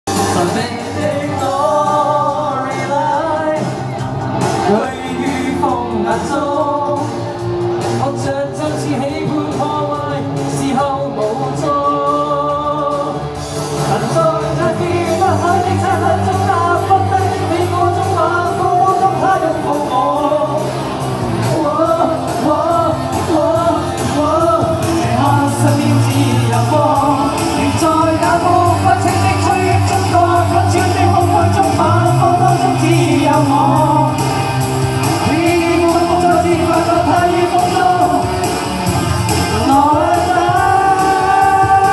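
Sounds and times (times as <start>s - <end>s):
keyboard: 0.0s - 41.9s
electric guitar: 0.1s - 41.9s
steady drum beat: 12.5s - 41.9s.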